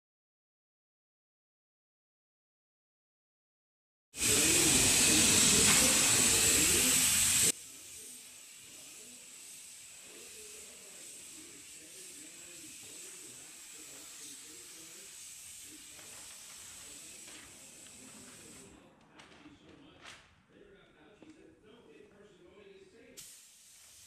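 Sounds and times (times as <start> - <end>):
spray gun hissing: 4.2 - 18.8, 23.2 - 24.0
faint background noise: 5.1 - 24.0.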